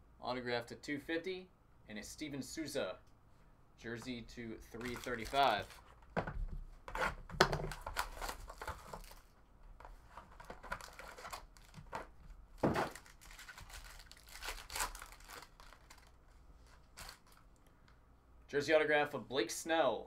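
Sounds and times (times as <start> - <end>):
cardboard box tearing and crinkling: 10.5 - 11.8, 12.6 - 16.0.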